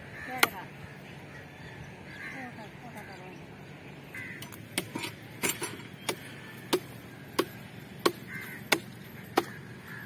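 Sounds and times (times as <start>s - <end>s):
chopping strikes: 4.4s - 9.6s.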